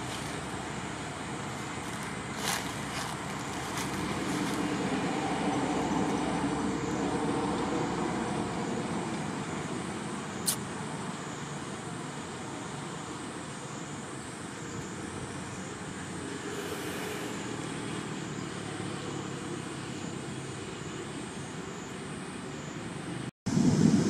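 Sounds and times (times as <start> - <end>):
vehicle passing: 0.0 - 9.6
distant road traffic: 0.0 - 24.0.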